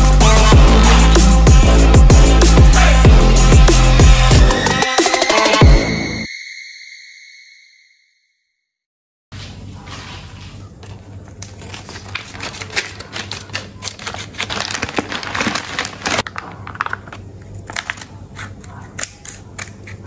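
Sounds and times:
plastic packaging crinkling: 0:10.1 - 0:19.8.

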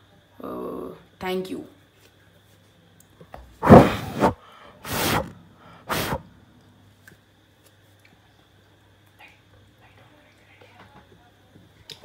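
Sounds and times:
puffs of breath blowing: 0:03.6 - 0:06.2.

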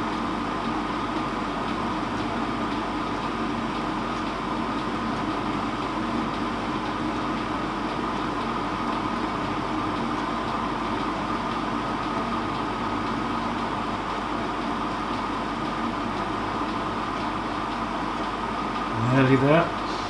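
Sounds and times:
metal lathe humming and whining: 0:00.0 - 0:20.0.

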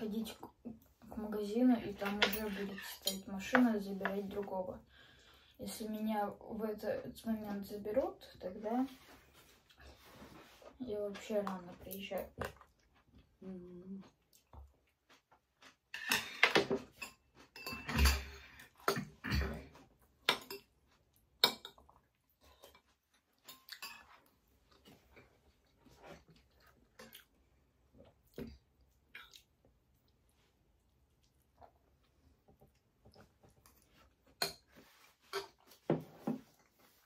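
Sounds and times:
cutlery scraping on plates: 0:01.9 - 0:03.6, 0:15.9 - 0:19.5, 0:23.5 - 0:24.3, 0:33.6 - 0:36.5
chewing: 0:12.4 - 0:16.4, 0:20.6 - 0:30.2.

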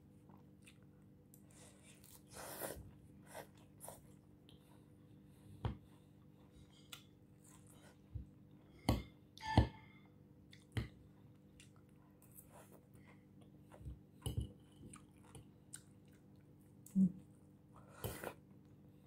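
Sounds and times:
faint steady hum: 0:00.0 - 0:19.0
person chewing salad: 0:00.3 - 0:04.6, 0:14.6 - 0:17.0.

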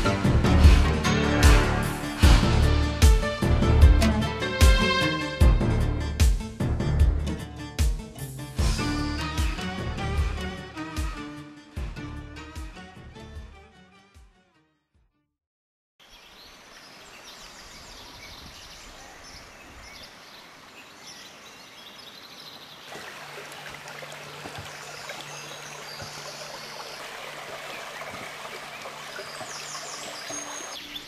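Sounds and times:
stream running over stones: 0:16.0 - 0:31.0.

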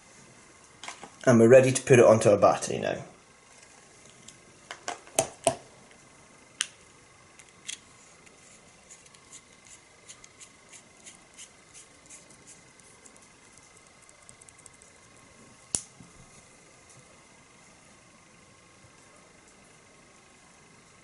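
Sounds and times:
faint ticks of threads turning: 0:12.8 - 0:15.8.

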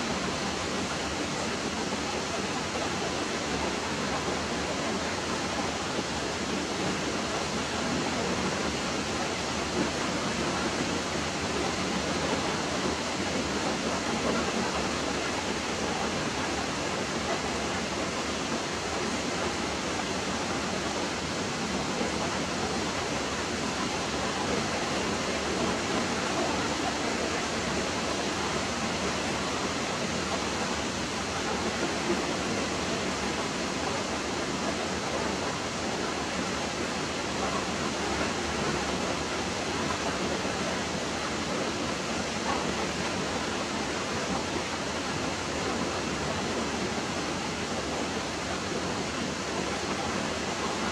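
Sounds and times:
steady hissing rushing noise: 0:00.0 - 0:50.9.

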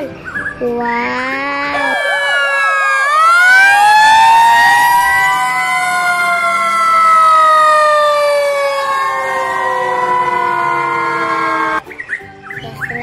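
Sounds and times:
fire engine sirens wailing: 0:01.5 - 0:11.8.

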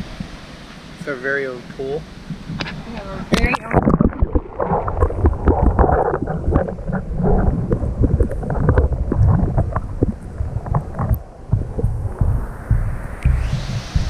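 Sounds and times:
wind buffeting microphone: 0:01.8 - 0:14.0.

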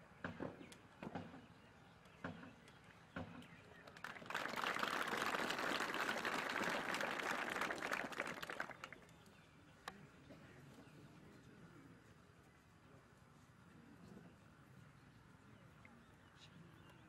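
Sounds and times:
audience applause: 0:03.9 - 0:09.0.

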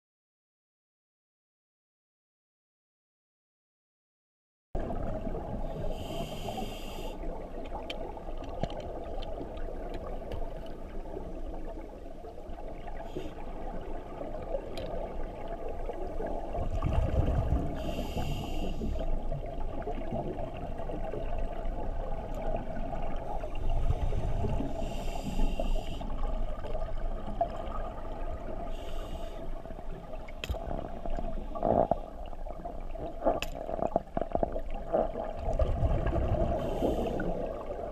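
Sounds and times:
regulator hiss on inhale: 0:05.8 - 0:07.3, 0:13.0 - 0:13.5, 0:17.8 - 0:19.2, 0:23.9 - 0:26.3, 0:28.6 - 0:29.8, 0:36.5 - 0:37.5
exhaust bubbles burbling: 0:16.4 - 0:17.9, 0:31.6 - 0:37.9.

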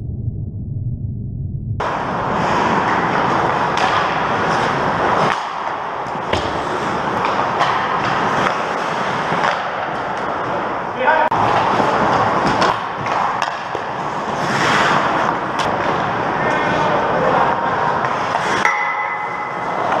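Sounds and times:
muffled low rumble: 0:00.0 - 0:02.2
hockey sticks and puck clacking: 0:01.8 - 0:20.0
skate blades scraping ice: 0:02.0 - 0:10.7, 0:11.4 - 0:20.0.

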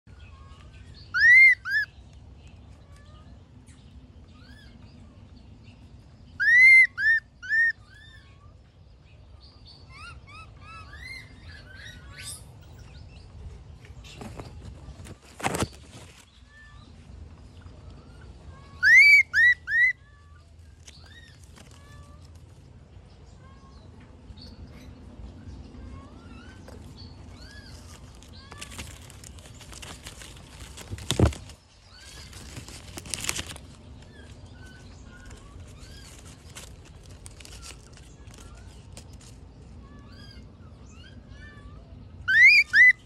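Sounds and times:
high arched chirping calls: 0:18.5 - 0:20.0, 0:40.0 - 0:43.0.

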